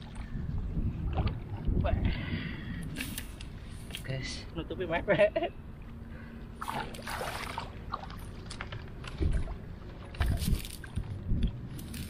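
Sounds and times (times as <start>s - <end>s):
shallow water splashing: 6.6s - 11.6s.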